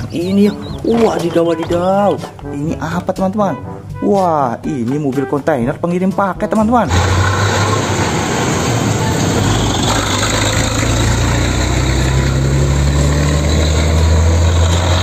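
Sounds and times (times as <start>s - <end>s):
truck engine rumble: 6.9s - 15.0s.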